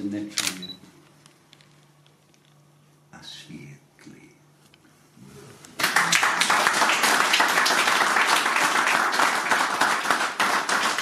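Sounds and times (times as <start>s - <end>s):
small audience applauding: 5.8s - 11.0s.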